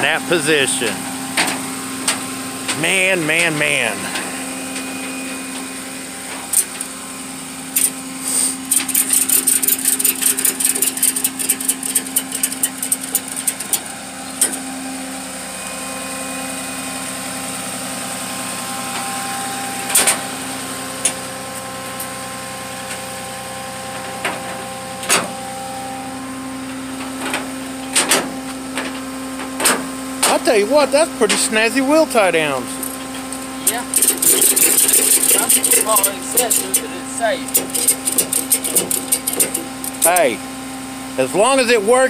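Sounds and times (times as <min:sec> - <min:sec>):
truck engine idling: 0:00.0 - 0:42.0
ratchet strap clicks: 0:07.8 - 0:08.0, 0:08.7 - 0:14.6, 0:33.7 - 0:36.8, 0:37.5 - 0:40.2.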